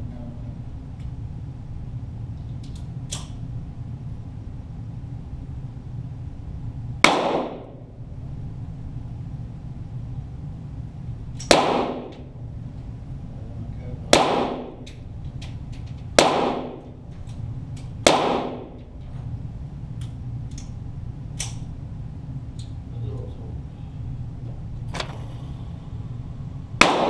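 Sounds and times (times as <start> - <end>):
steady low hum: 0.0 - 27.0
pistol shots with echo: 7.0 - 7.8, 11.4 - 12.3, 14.1 - 14.8, 16.2 - 16.9, 18.0 - 18.8, 26.8 - 27.0.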